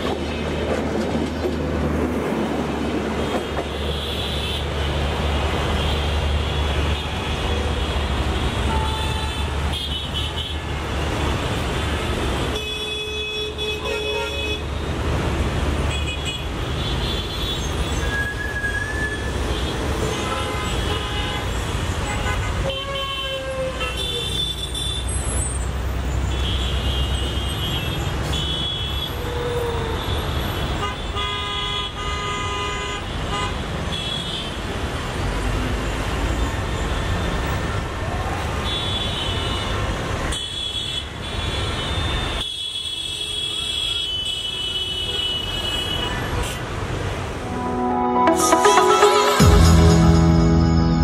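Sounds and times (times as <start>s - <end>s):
road traffic rumble: 0.0s - 12.6s, 45.0s - 48.3s.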